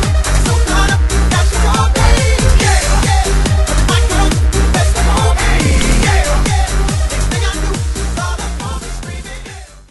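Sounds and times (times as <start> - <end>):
music with fast kick-drum beat: 5.2 - 8.0.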